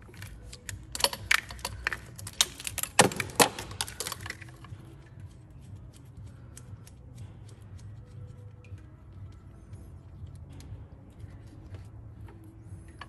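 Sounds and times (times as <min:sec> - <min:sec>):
plastic connector clicks and rattles: 0:00.1 - 0:08.4.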